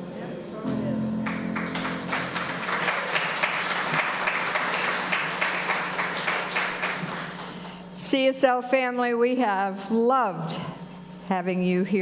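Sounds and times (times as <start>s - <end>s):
congregation applauding: 1.2s - 7.8s.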